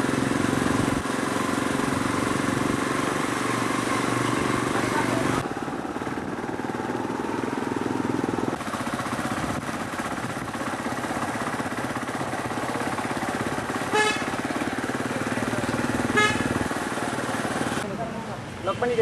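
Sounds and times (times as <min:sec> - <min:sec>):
motorcycle engine running: 0:00.0 - 0:19.0
horn toot: 0:13.9 - 0:14.4, 0:16.1 - 0:16.7.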